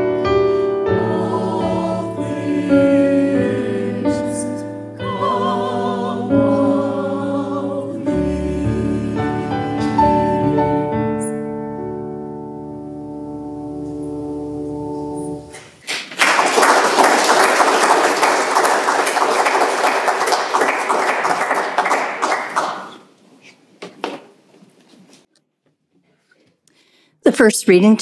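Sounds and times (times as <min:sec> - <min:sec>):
audience applauding: 0:15.8 - 0:23.2.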